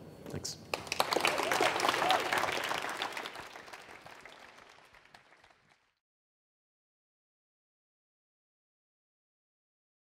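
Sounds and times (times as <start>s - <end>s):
audience applauding: 0.7s - 6.0s.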